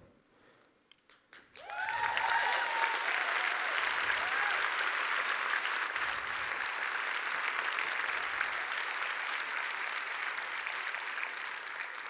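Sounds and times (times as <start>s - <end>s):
audience applauding: 1.1s - 12.0s.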